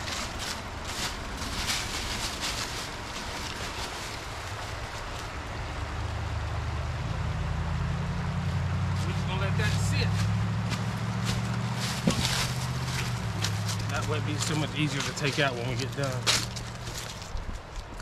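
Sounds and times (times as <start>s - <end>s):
scraping and rustling: 0.0s - 5.4s, 10.1s - 18.0s
vehicle engine humming: 0.0s - 18.0s.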